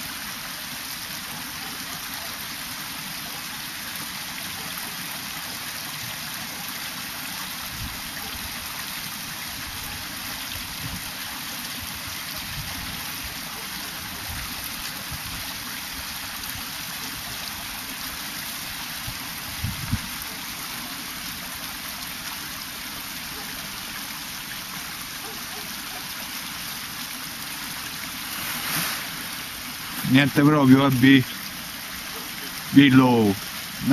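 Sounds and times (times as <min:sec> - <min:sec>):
creek water running: 0:00.0 - 0:33.9.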